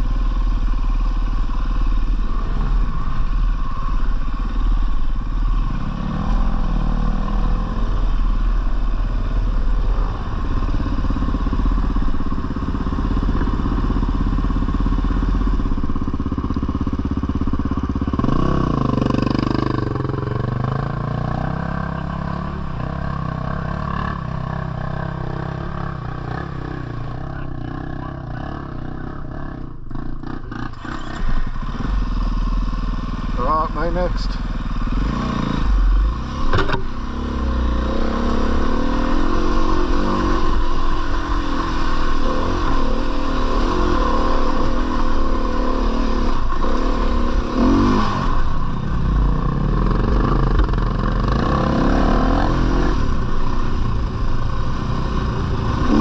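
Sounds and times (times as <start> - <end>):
dirt bike engine revving: 0.8 - 15.6, 17.9 - 56.0.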